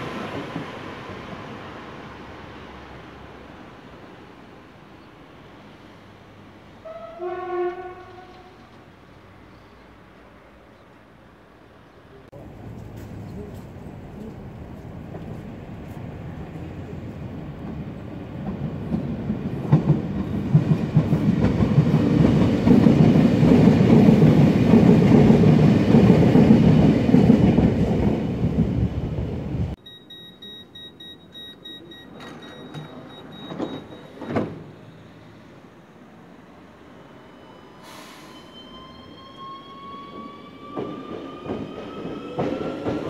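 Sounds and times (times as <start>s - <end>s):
train wheels rumbling on rails: 0.0s - 3.1s, 12.4s - 29.8s, 38.1s - 43.0s.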